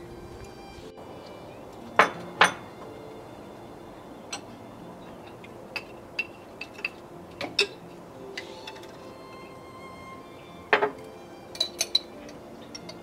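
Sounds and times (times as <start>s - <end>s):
tableware clinking: 1.9s - 2.8s, 4.3s - 9.5s, 10.7s - 13.0s.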